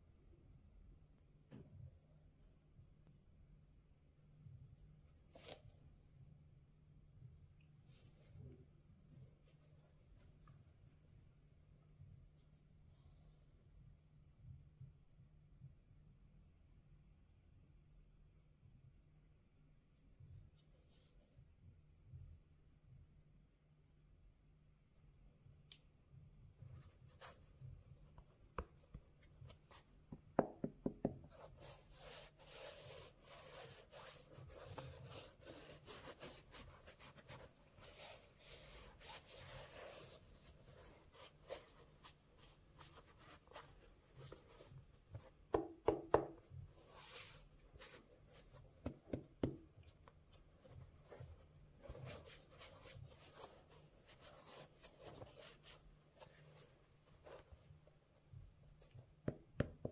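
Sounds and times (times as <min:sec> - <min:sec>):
gloves rubbing on a sneaker: 0:31.2 - 0:45.4, 0:46.2 - 0:59.0.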